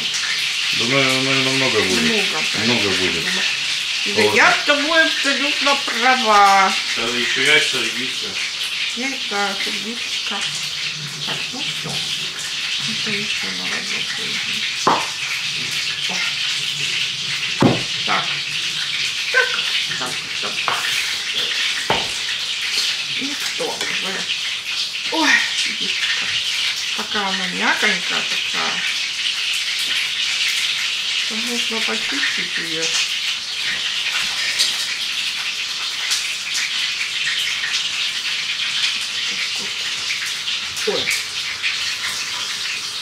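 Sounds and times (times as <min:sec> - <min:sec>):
running tap water: 0:00.0 - 0:43.0
sharp knocks: 0:17.6 - 0:18.0.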